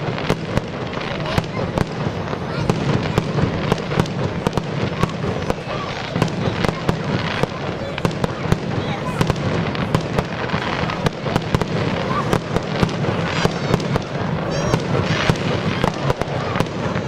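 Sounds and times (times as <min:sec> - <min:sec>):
fireworks bangs and pops: 0:00.0 - 0:17.0.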